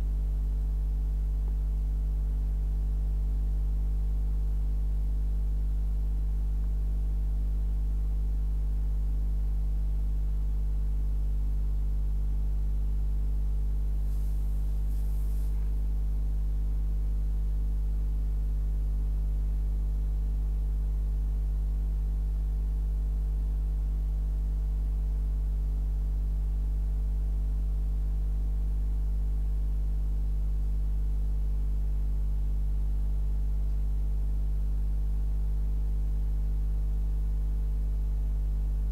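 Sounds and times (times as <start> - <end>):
steady low hum: 0.0 - 38.9
faint hisses: 14.0 - 15.8.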